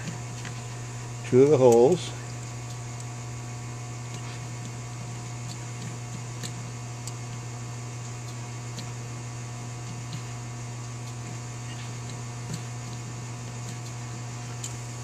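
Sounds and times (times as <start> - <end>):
electrical mains hum: 0.0 - 15.0.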